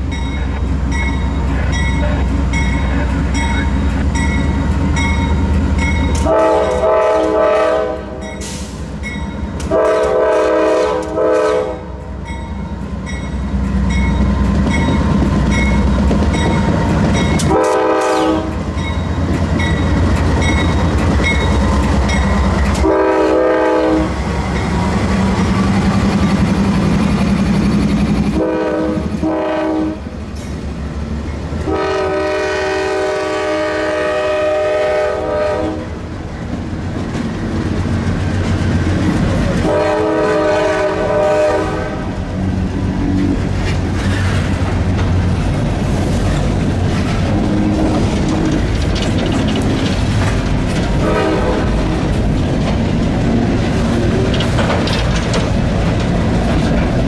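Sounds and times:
locomotive engine rumbling: 0:00.0 - 0:57.0
train clicking along rails: 0:00.0 - 0:57.0
locomotive air horn blasts: 0:06.2 - 0:08.8, 0:09.6 - 0:12.0, 0:17.4 - 0:18.6, 0:22.7 - 0:24.2, 0:28.3 - 0:30.1, 0:31.6 - 0:36.0, 0:39.6 - 0:42.2, 0:51.0 - 0:52.0.

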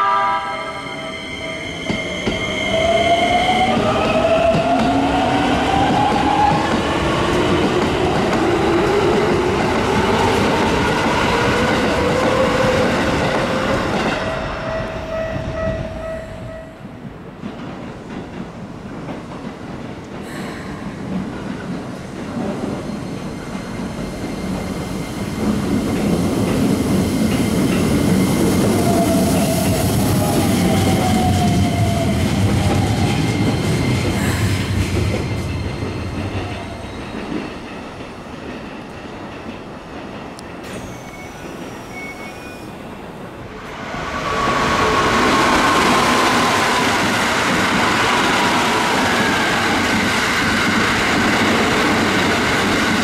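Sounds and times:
train wheels clattering on rails: 0:15.3 - 0:43.2, 0:44.3 - 0:53.0.

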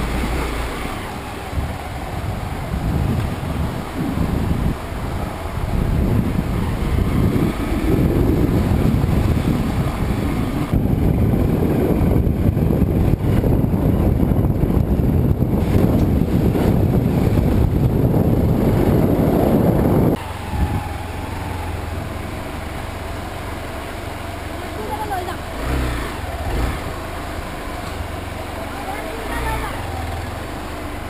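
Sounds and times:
loud rushing rumble: 0:00.0 - 0:23.7
motorcycle engine running: 0:00.0 - 0:31.0.

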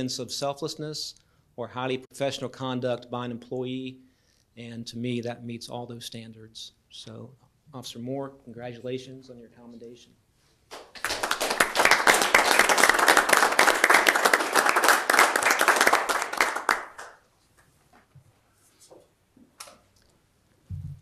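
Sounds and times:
audience applauding: 0:10.8 - 0:17.2.

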